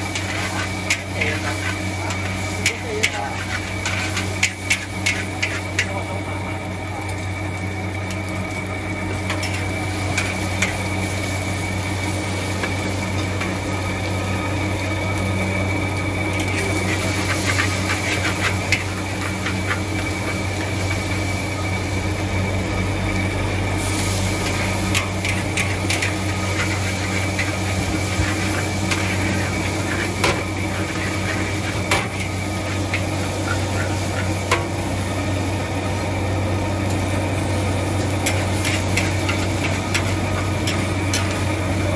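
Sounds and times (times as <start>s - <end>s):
metal spatula scraping a wok: 0.0s - 5.9s, 16.3s - 20.8s, 24.4s - 34.8s, 38.2s - 41.9s
steady low hum: 0.0s - 41.9s.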